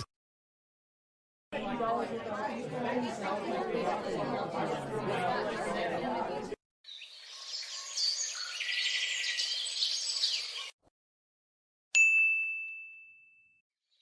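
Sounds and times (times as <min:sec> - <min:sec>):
high-pitched chirping: 0:06.9 - 0:10.8
bright ding: 0:12.0 - 0:13.6.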